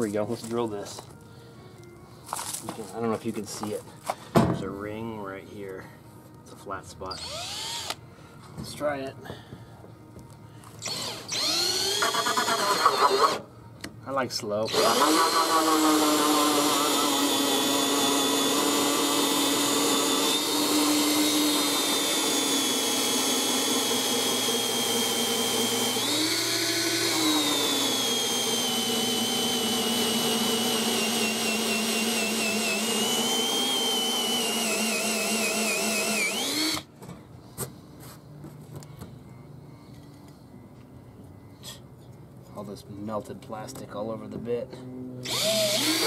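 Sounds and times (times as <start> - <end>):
cordless drill whining: 7.0 - 8.0, 10.8 - 13.4, 14.7 - 36.9, 45.2 - 46.0.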